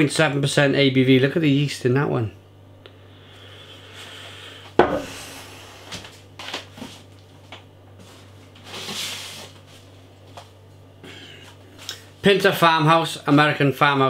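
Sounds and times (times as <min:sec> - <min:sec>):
bottle knocking: 0:04.8 - 0:05.1.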